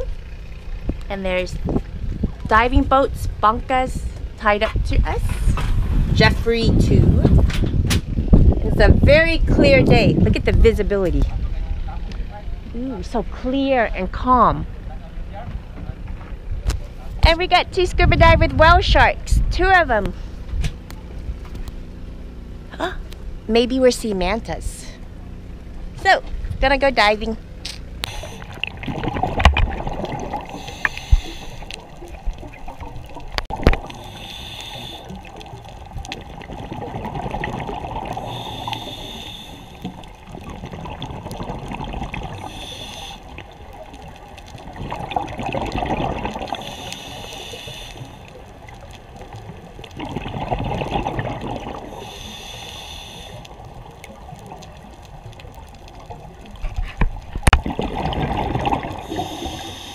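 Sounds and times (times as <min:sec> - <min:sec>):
hissing regulator inhale: 0:28.0 - 0:28.6, 0:30.4 - 0:31.9, 0:33.8 - 0:35.3, 0:38.2 - 0:40.0, 0:42.4 - 0:43.5, 0:46.5 - 0:48.4, 0:51.8 - 0:53.6, 0:59.0 - 0:59.9
gurgling exhaled bubbles: 0:28.0 - 0:59.9.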